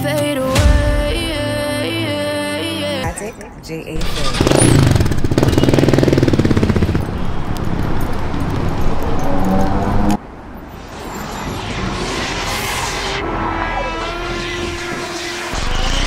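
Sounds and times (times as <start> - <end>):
motorcycle engine running: 4.0 - 7.8
rising whoosh: 9.6 - 15.6.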